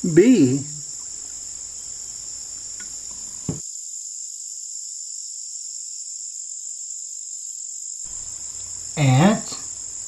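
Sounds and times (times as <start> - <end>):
low background noise: 0.0 - 3.6
high-pitched insect chirring: 0.0 - 10.0.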